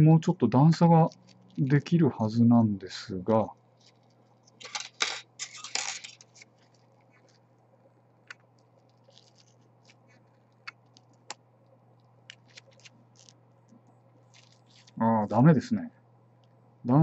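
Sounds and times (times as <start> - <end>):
scratching and scraping of plastic: 3.8 - 7.4, 8.8 - 11.2.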